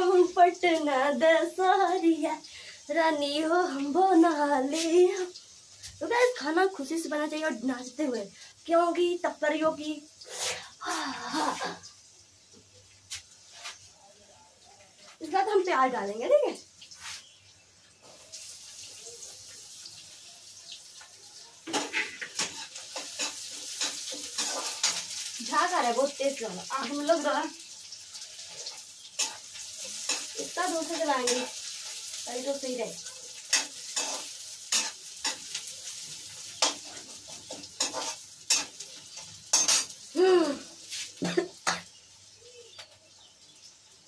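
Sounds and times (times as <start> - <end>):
onions sizzling in oil: 0.0 - 44.0
metal ladle scraping pan: 21.7 - 25.1, 36.6 - 38.8.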